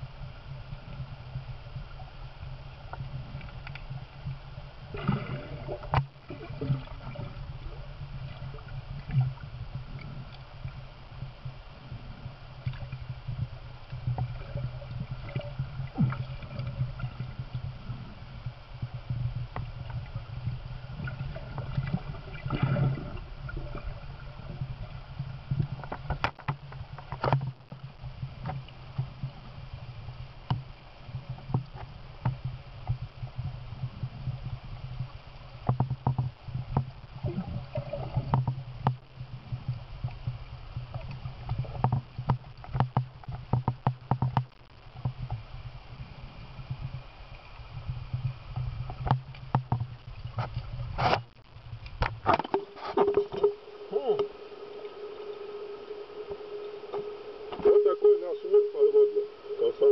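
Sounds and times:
underwater river rumble: 0:00.0 - 0:59.9
sharp underwater clicks and ticks: 0:02.9 - 0:04.0, 0:24.8 - 0:29.4, 0:30.4 - 0:30.7, 0:35.0 - 0:45.5, 0:48.1 - 0:53.6.

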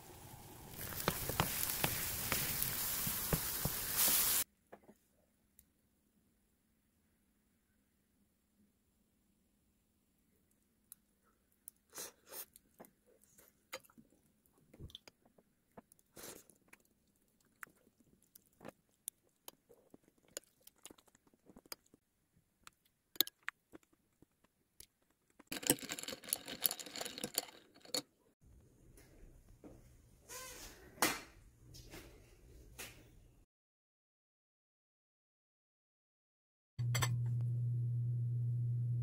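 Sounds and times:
crackling: 0:00.0 - 0:04.4
person chewing and crunching: 0:16.1 - 0:22.0.

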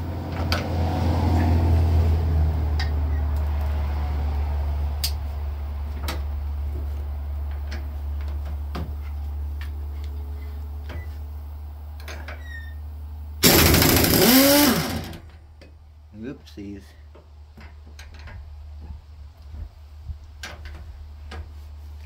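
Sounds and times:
air impact wrench burst: 0:13.4 - 0:15.2.

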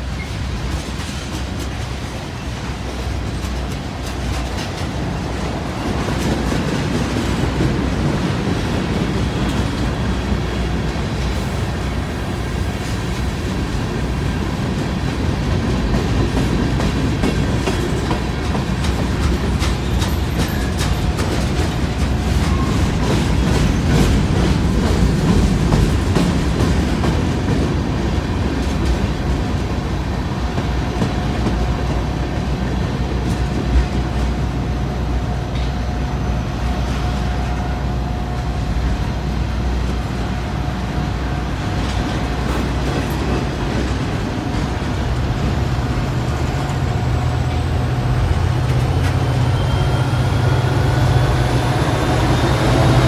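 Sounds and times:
freight train rumbling past: 0:00.0 - 0:53.0
wheels clicking over rail joints: 0:00.2 - 0:11.5, 0:12.8 - 0:34.5.

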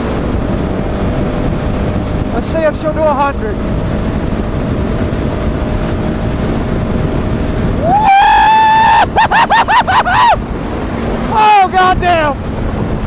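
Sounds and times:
motorcycle engine: 0:00.0 - 0:13.0
wind blast on microphone: 0:00.0 - 0:13.0
person whooping and yelping: 0:07.8 - 0:10.4.

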